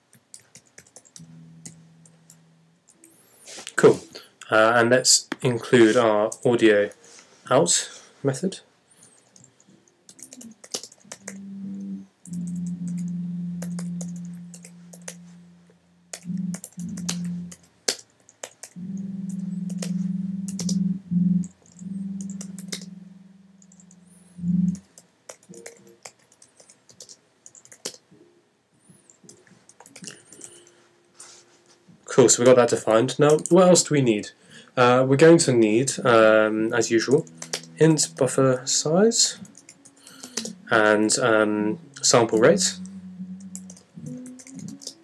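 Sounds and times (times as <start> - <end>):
low steady tone: 1.2 - 3.6, 9.8 - 17.6, 18.8 - 24.9, 35.5 - 45.0.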